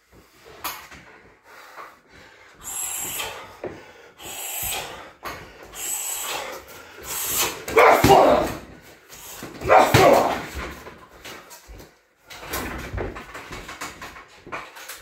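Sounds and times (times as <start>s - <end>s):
man breathing hard: 0.0s - 7.7s.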